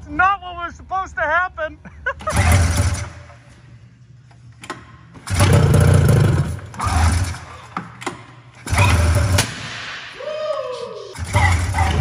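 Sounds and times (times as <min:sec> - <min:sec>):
recoil starter pulls: 0:05.2 - 0:07.5.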